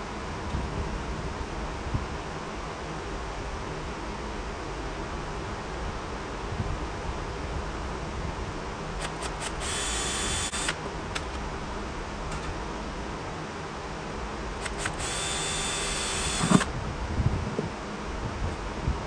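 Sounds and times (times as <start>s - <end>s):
cordless drill drilling metal panel: 9.0s - 10.8s, 14.6s - 16.7s
small clicks: 9.0s - 11.4s, 14.6s - 16.7s.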